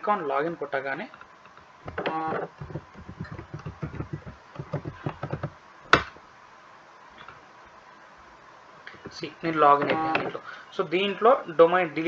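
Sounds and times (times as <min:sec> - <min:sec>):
typing on computer keyboard: 0:01.9 - 0:05.5
sharp keyboard click: 0:01.9 - 0:06.1.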